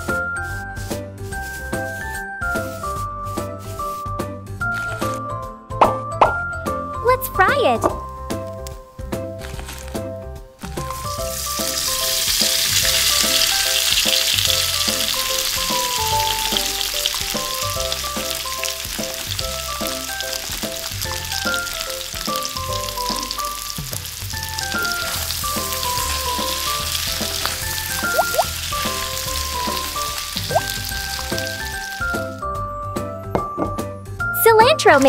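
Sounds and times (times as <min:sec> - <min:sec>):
light music melody: 0:00.0 - 0:35.0
hot oil sizzling: 0:10.6 - 0:32.6.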